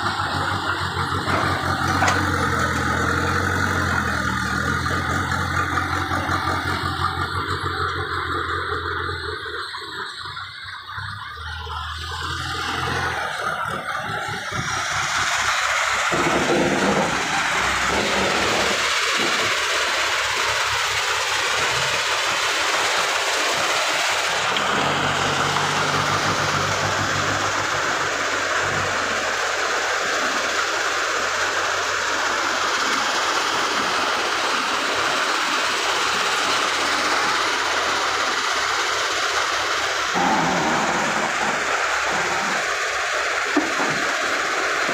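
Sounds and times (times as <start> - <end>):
diesel engine running: 0.0 - 44.9
loud mechanical clatter: 0.0 - 44.9.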